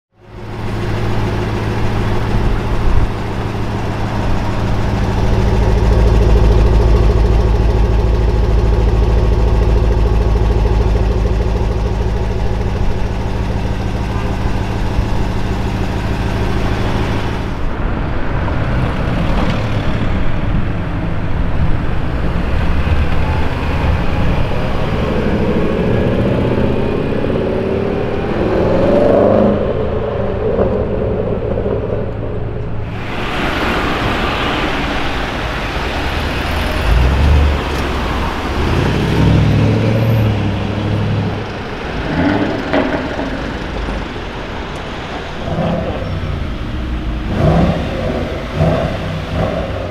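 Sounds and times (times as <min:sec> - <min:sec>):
car engine idling: 0:00.1 - 0:19.0, 0:29.6 - 0:49.9
car moving off in traffic: 0:00.1 - 0:49.9.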